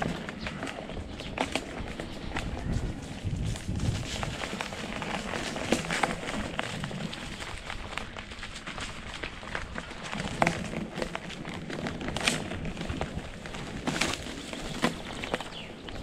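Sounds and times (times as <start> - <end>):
bike clicking and rattling: 0.0 - 16.0
wind and tyres rushing: 0.0 - 16.0.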